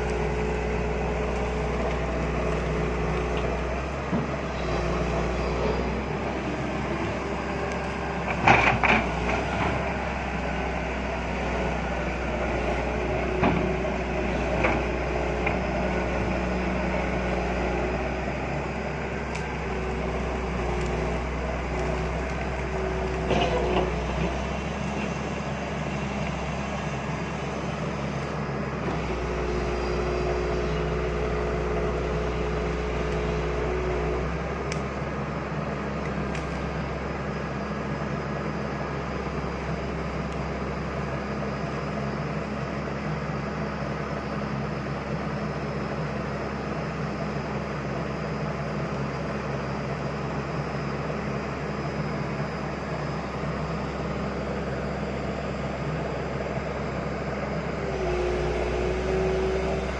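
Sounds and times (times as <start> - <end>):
excavator diesel engine running: 0.0 - 59.9
high steady whine: 15.9 - 59.9.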